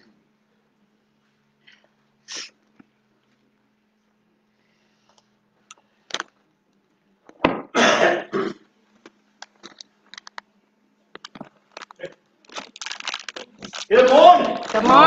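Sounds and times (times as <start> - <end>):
faint steady hum: 0.0 - 15.0
person coughing: 7.7 - 8.7
small clicks and rustles: 8.9 - 10.5, 11.1 - 13.9.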